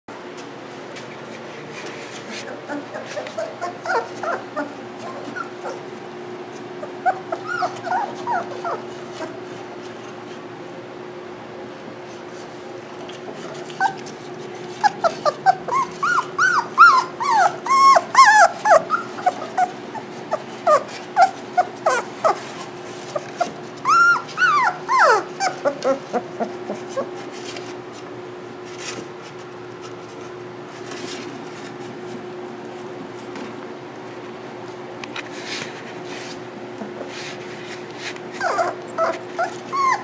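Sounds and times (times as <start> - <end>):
puppies whining: 2.2 - 10.2, 13.4 - 28.0, 35.8 - 40.0.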